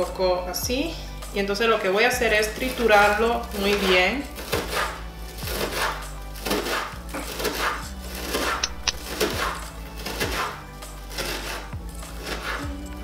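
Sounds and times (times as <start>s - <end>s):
background music: 0.0s - 13.0s
knife chopping on plastic board: 3.7s - 10.6s.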